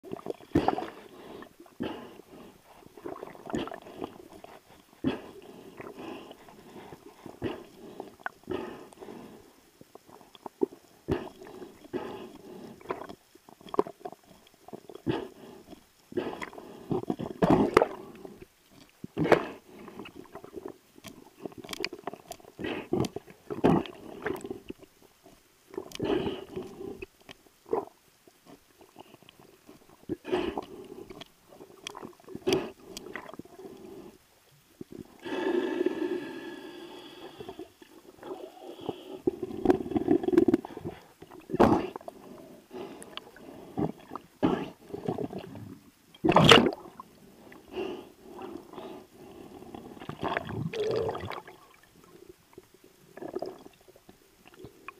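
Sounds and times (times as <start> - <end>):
water gurgling: 0.0 - 54.9
bubbly rush: 50.1 - 51.8.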